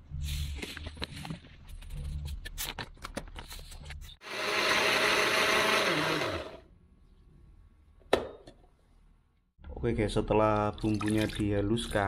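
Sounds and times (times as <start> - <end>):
electric blender grinding: 4.2 - 6.7.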